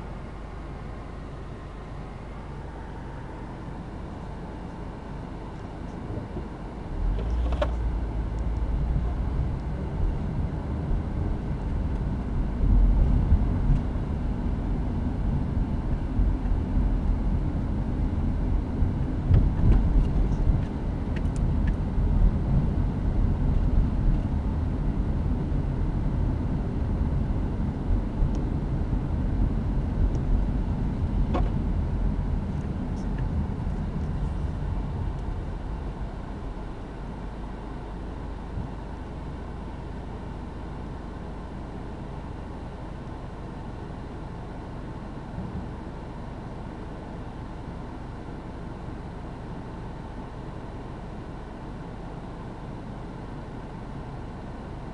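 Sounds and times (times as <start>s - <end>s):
car road and engine noise: 0.0s - 54.9s.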